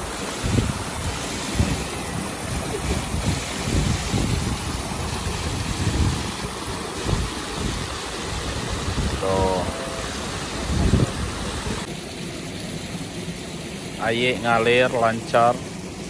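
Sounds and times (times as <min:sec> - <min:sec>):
wind buffeting microphone: 0:00.0 - 0:11.9
water splashing over rocks: 0:00.0 - 0:16.0.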